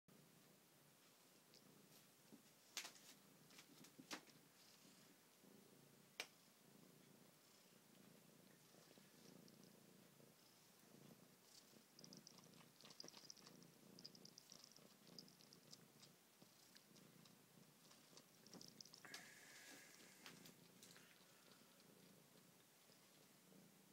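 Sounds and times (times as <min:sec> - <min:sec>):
cat purring: 0:00.1 - 0:23.9
faint clicks: 0:11.6 - 0:23.2.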